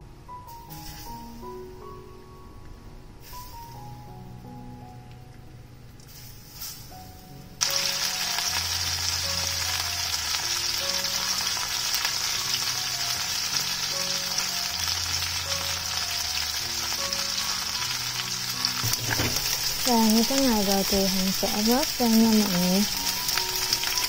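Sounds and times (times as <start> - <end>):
fish frying in hot oil: 7.6 - 24.0.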